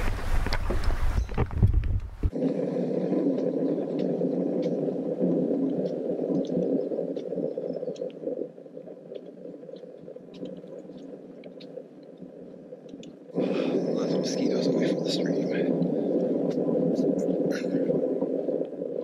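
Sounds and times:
low wind rumble on microphone: 0.0 - 9.6
faint ticks: 3.2 - 13.3, 14.4 - 19.0.

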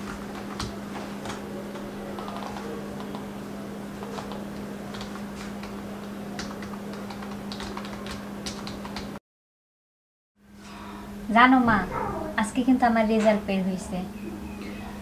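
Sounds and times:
steady low hum: 10.4 - 15.0.

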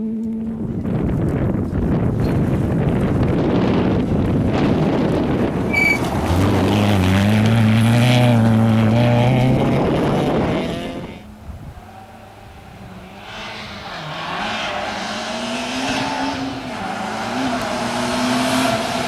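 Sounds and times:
rally car accelerating past: 4.6 - 11.2, 12.5 - 19.0.

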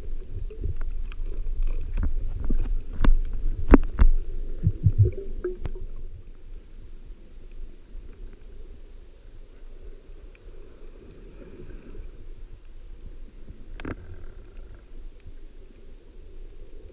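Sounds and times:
low thumps: 3.7 - 5.8.

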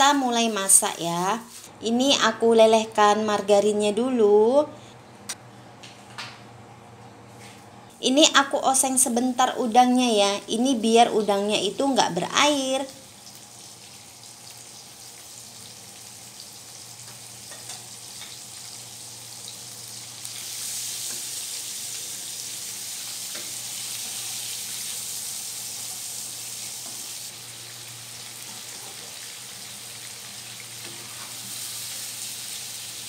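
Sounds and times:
shrimp sizzling in a frying pan: 12.9 - 33.0
spatula stirring in a pan: 30.8 - 31.6.

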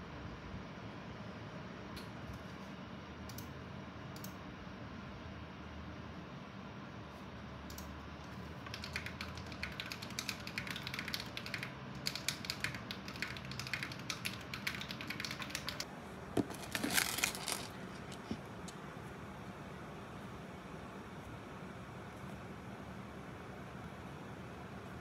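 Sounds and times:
soft keyboard clicks: 7.7 - 18.8.

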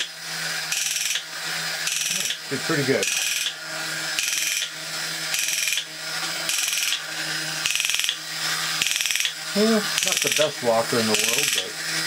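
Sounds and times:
small electric motor humming: 0.0 - 12.0
ratchets clicking: 0.7 - 1.2, 1.8 - 2.4, 3.0 - 4.7, 6.5 - 7.0, 7.6 - 8.2, 8.8 - 10.5.

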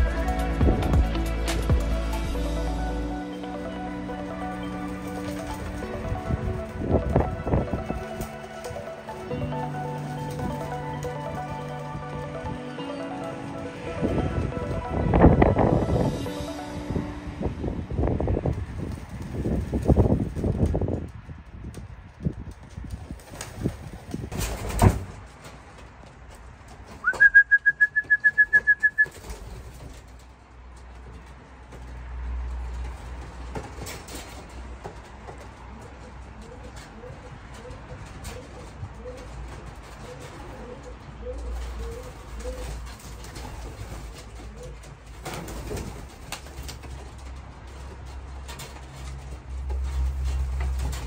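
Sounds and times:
high trilled whistle: 27.0 - 29.2
pigeons cooing: 35.6 - 46.9.

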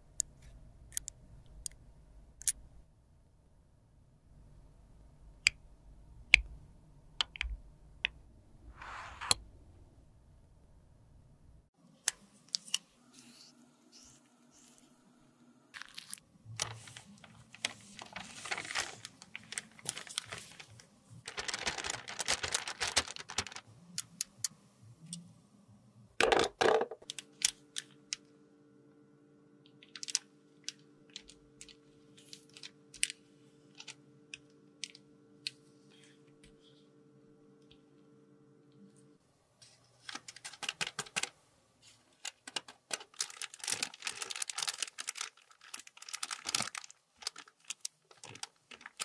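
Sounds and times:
faint steady hum: 0.0 - 49.0
spatula scraping in plastic bag: 8.7 - 9.4.

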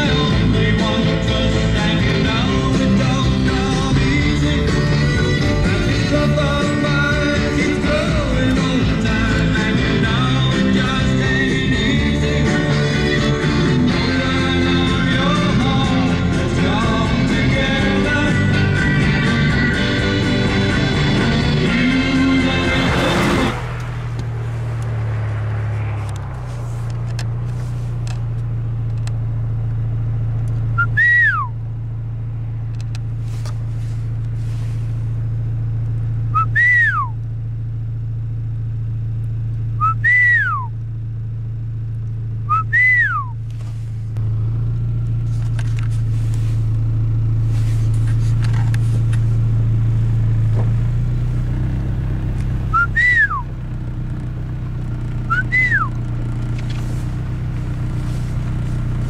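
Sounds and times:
vehicle engine rumbling: 0.0 - 59.0
person whistling: 30.8 - 31.6, 36.3 - 37.2, 39.8 - 40.8, 42.5 - 43.4, 52.7 - 53.5, 55.2 - 56.0.

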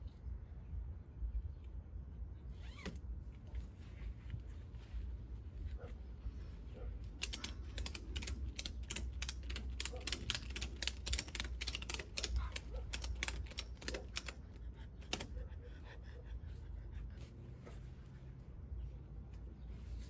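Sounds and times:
ratchet buckle clicking: 7.0 - 15.4.

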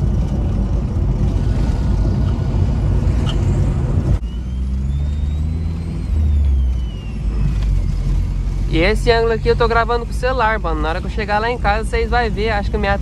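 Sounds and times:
engine and road rumble in cabin: 0.0 - 13.0
faint high whine: 4.2 - 13.0.

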